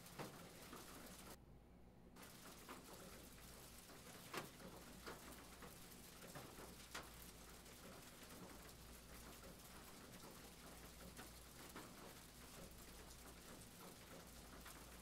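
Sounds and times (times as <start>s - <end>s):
faint steady hiss: 0.0s - 1.4s.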